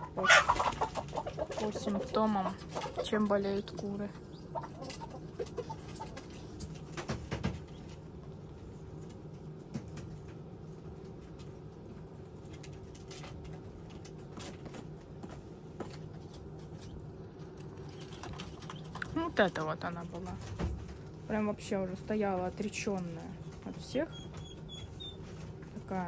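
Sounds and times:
low steady hum: 0:00.0 - 0:26.0
chickens clicking on wooden perch: 0:04.6 - 0:08.0, 0:12.4 - 0:15.0, 0:15.8 - 0:19.6.

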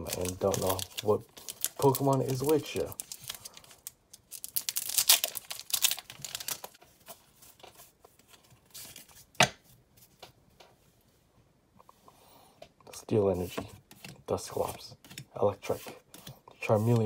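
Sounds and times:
plastic wrapper tearing: 0:00.0 - 0:06.8
cards handled crinkling: 0:00.0 - 0:09.3.

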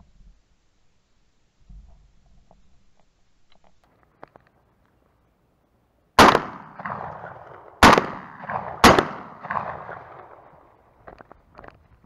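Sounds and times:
faint clicks and rustles: 0:01.5 - 0:05.3, 0:10.9 - 0:12.0
shotgun blast echo: 0:06.2 - 0:10.6.

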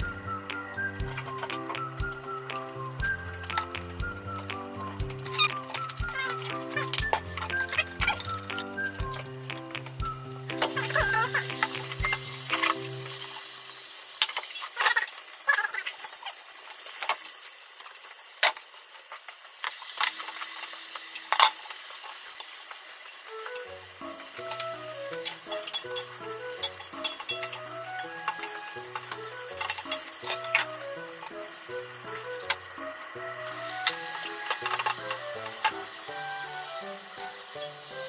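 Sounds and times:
egg sizzling in a pan: 0:00.0 - 0:38.0
chopsticks clicking on a pan: 0:23.4 - 0:31.4, 0:33.4 - 0:35.8.

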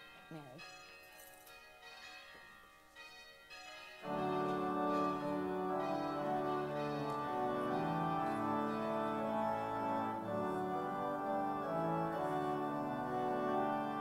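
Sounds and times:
faint bell ringing: 0:00.0 - 0:08.4
organ playing a hymn: 0:01.8 - 0:14.0.

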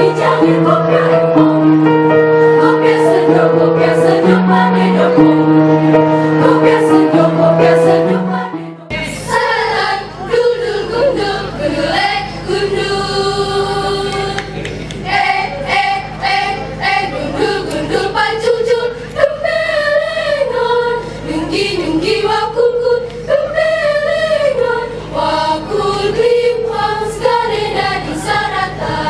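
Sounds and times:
girls' choir singing: 0:00.0 - 0:29.0.

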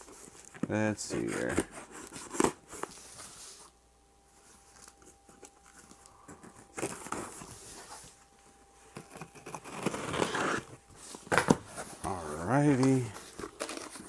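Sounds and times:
packing tape and cardboard being cut: 0:06.5 - 0:07.5, 0:08.9 - 0:12.2.

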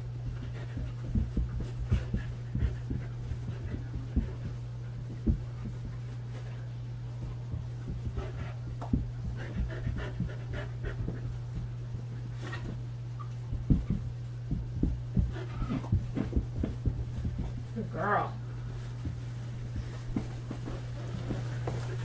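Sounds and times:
feet thumping on carpet: 0:00.0 - 0:17.8, 0:18.7 - 0:22.0
steady low hum: 0:00.0 - 0:22.0
dog panting: 0:00.1 - 0:12.9, 0:13.5 - 0:17.7.

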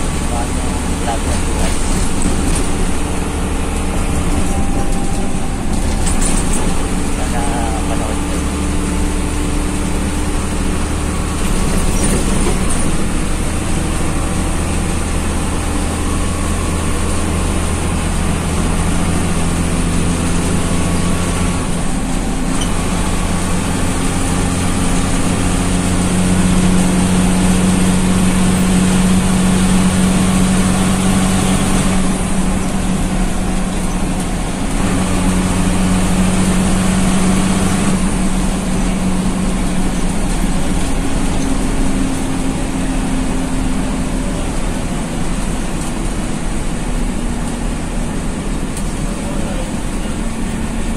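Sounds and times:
bus engine running: 0:00.0 - 0:50.9
road noise inside vehicle: 0:00.0 - 0:50.9.

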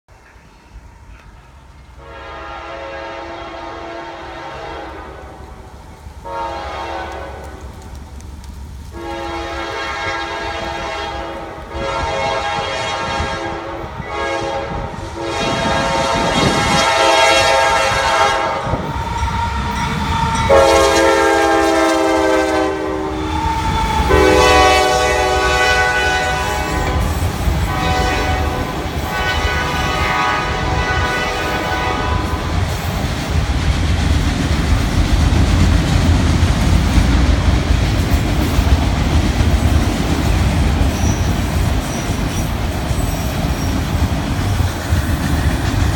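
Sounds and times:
locomotive air horn blasts: 0:02.0 - 0:05.6, 0:06.2 - 0:07.6, 0:08.9 - 0:18.9, 0:20.4 - 0:23.4, 0:24.0 - 0:32.5
locomotives rumbling past: 0:03.6 - 0:45.9
train wheels clattering on rails: 0:05.8 - 0:13.3, 0:14.9 - 0:45.9.

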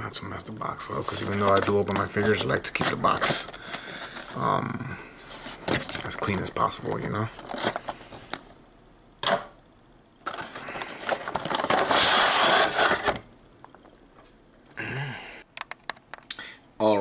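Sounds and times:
plastic scraping against cardboard: 0:00.9 - 0:04.5, 0:10.2 - 0:13.2.

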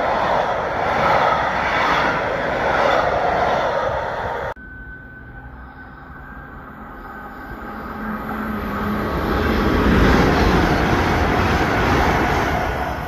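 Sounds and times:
rush of air from passing train: 0:00.0 - 0:13.0
train wheels on rail: 0:00.0 - 0:13.0.

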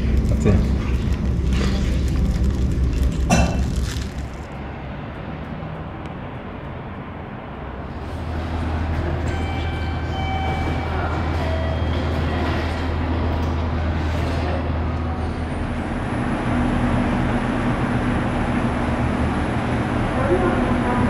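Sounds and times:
cafe clatter: 0:00.0 - 0:04.4
train rumbling: 0:00.0 - 0:21.0.

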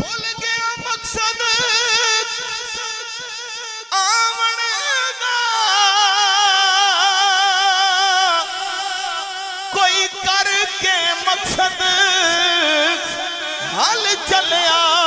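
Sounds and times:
man singing unaccompanied: 0:00.0 - 0:15.0.

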